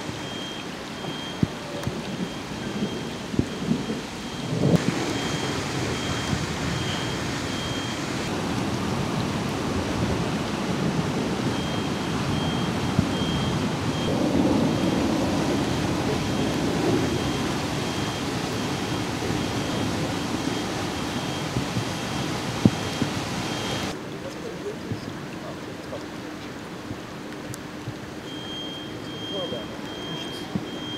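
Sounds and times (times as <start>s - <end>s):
heavy rain on flooded street: 0.0s - 30.9s
faint high electronic beep: 0.2s - 4.5s, 5.1s - 8.0s, 28.2s - 30.9s.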